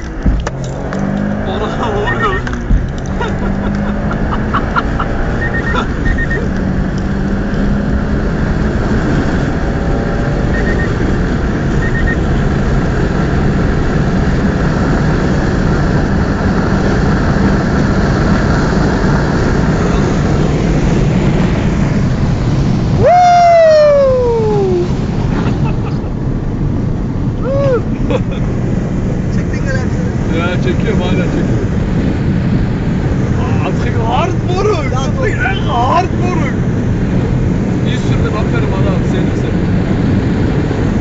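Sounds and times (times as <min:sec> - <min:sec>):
car engine drone: 0:00.0 - 0:41.0
road and wind noise: 0:00.0 - 0:41.0
man yelling: 0:01.5 - 0:02.4, 0:23.0 - 0:24.9, 0:27.4 - 0:27.9
short beeps: 0:05.4 - 0:06.6, 0:10.5 - 0:11.0, 0:11.8 - 0:12.3.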